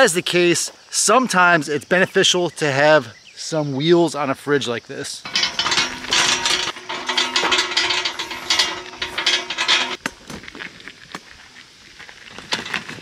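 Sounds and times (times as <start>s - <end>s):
hand truck rattling over gravel: 5.3s - 10.2s, 12.4s - 13.0s.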